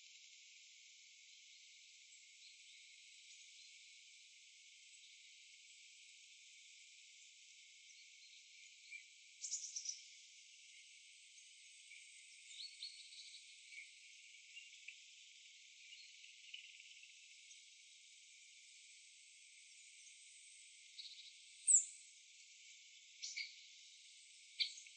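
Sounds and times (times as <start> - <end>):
faint steady hiss: 0.0 - 24.9.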